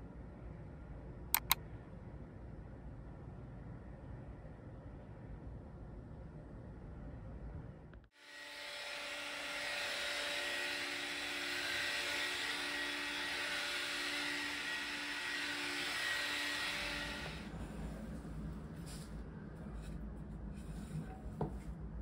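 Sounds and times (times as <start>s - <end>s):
vacuum cleaner running: 8.1s - 17.9s.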